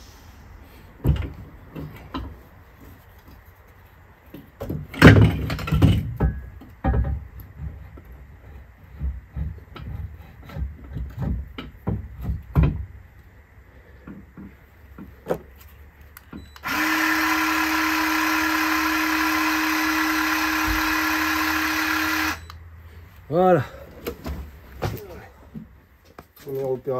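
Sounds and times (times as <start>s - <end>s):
power tool running: 16.6s - 22.6s.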